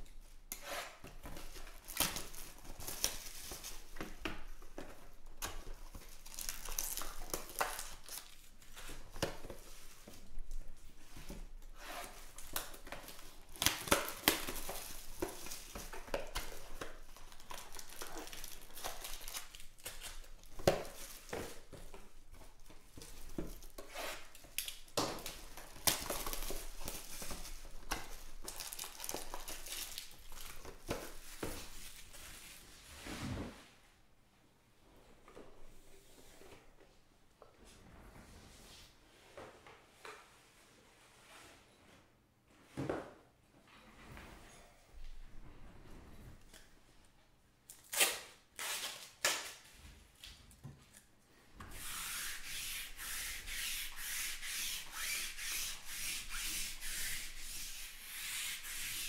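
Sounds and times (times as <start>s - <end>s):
plastic shrink-wrap crinkling: 5.7s - 9.1s, 12.3s - 32.2s.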